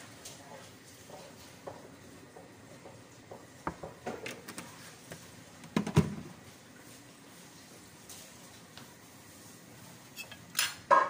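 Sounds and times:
kitchen containers clicking and knocking: 5.6 - 6.3.

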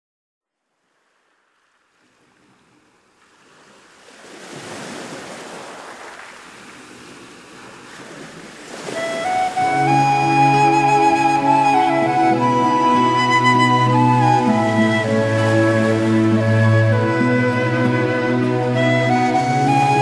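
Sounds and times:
flute music: 8.8 - 20.0.

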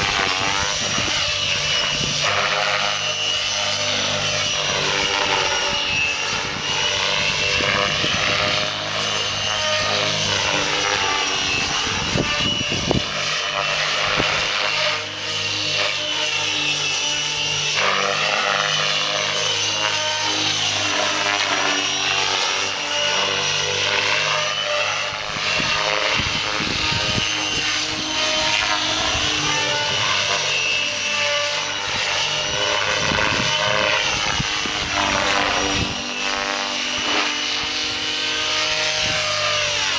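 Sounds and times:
electric motor whining: 0.0 - 39.9
rotor blades whooshing: 0.0 - 39.9.

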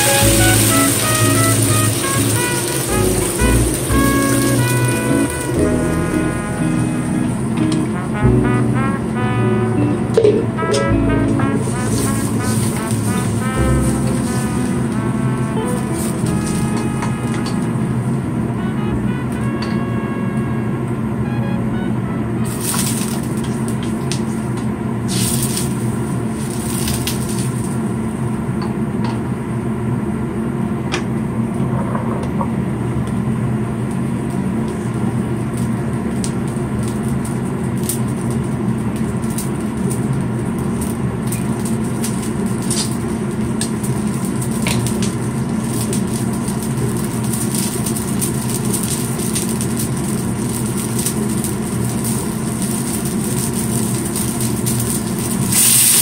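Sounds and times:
low hum: 5.3 - 22.3.

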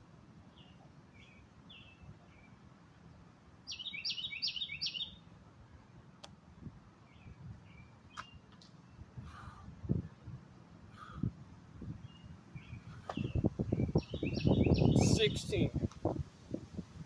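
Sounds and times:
birds chirping: 0.4 - 5.3, 7.0 - 9.7, 10.8 - 15.7.

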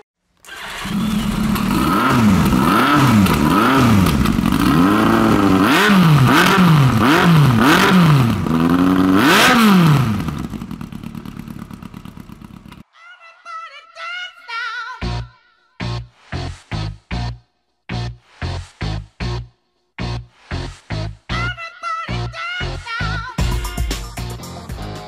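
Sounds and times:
motorcycle engine revving: 0.5 - 12.8
motorcycle engine uneven idle: 0.5 - 12.8.

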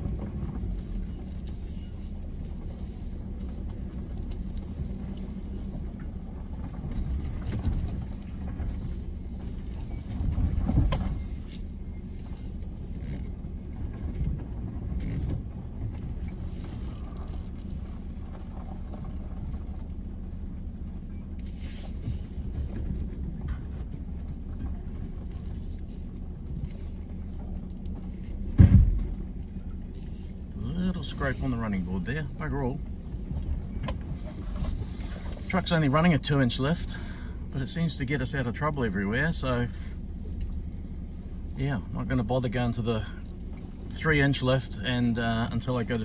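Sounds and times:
engine and drivetrain rumble: 0.0 - 46.0
body and suspension knocks: 28.4 - 29.3.

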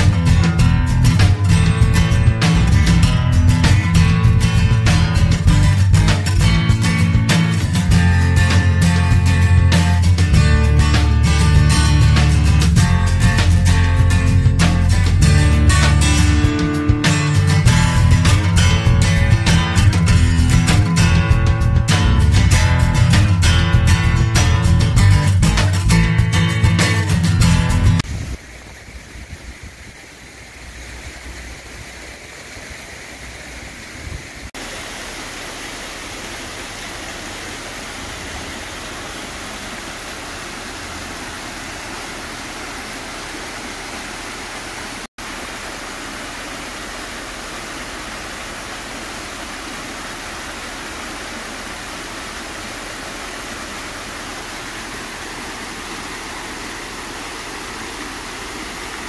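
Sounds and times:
water pouring down cascade: 0.0 - 59.0
fountain water splashing into pool: 28.0 - 59.0.

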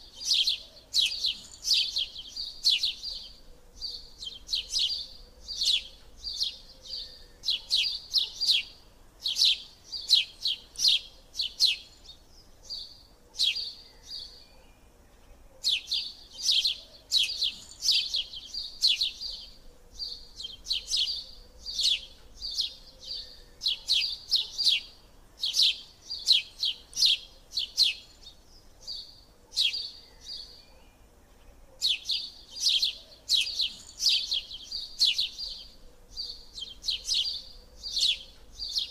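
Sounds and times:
bird chirping: 0.0 - 38.9.

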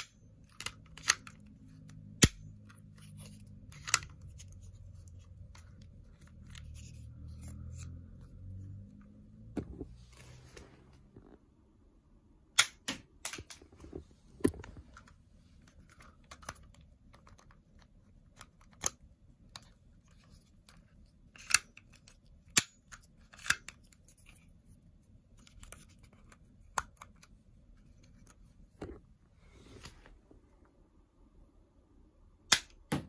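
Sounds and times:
toy crossbow plastic clicks: 0.0 - 1.4, 2.0 - 4.4.

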